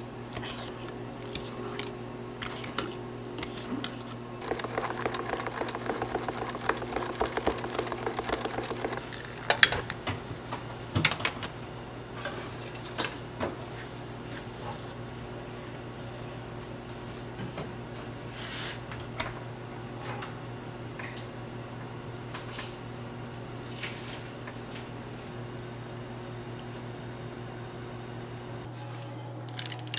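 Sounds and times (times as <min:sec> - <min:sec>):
whisk beating in metal pan: 0:04.4 - 0:09.1.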